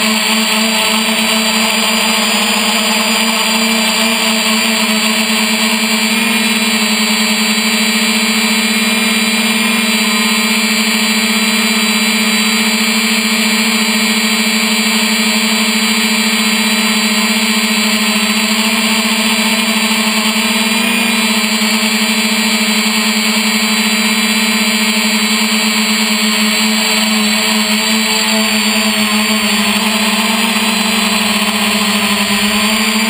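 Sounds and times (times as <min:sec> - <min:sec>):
drone motors buzzing: 0:00.0 - 0:33.0
propeller hiss: 0:23.5 - 0:33.0.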